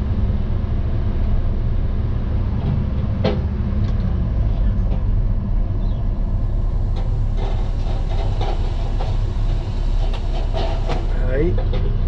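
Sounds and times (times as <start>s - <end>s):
diesel engine running: 0.0s - 12.0s
logs knocking and clunking: 2.6s - 4.1s, 10.0s - 12.0s.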